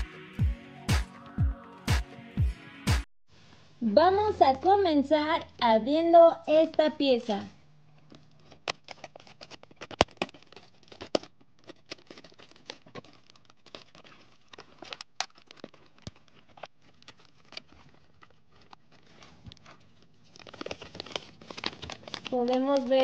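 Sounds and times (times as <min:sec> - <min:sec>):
plastic packaging crinkling: 0:08.0 - 0:23.0
scissors cutting plastic: 0:08.0 - 0:23.0.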